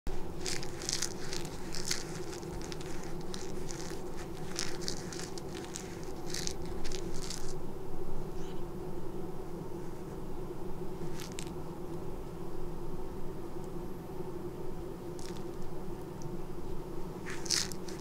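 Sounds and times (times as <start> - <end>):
crinkly rustles of toy: 0.1 - 7.6, 11.0 - 11.6, 15.2 - 15.6, 17.2 - 18.0.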